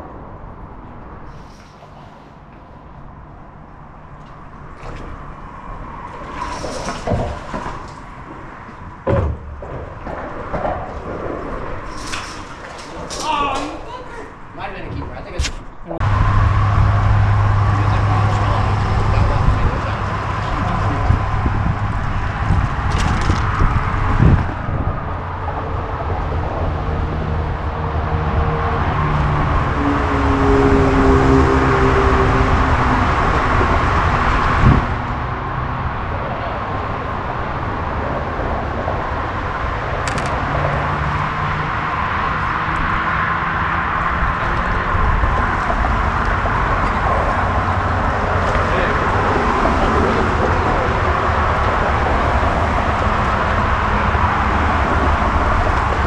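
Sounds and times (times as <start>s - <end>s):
engine hum: 0.0s - 56.0s
traffic rumble: 0.0s - 56.0s
hollow thumps on a boat: 6.0s - 11.9s.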